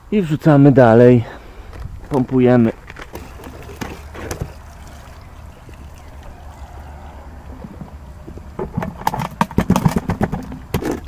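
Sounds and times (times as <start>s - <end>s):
water pouring into filter basket: 3.2s - 8.1s.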